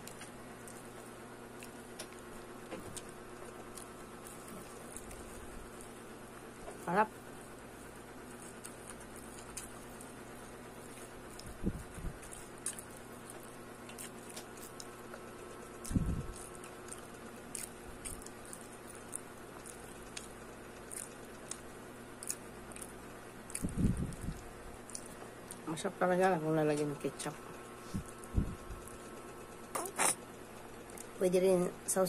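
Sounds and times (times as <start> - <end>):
person chewing: 0.0 - 2.3, 3.0 - 6.3, 7.7 - 25.6
faint hum: 0.0 - 32.0.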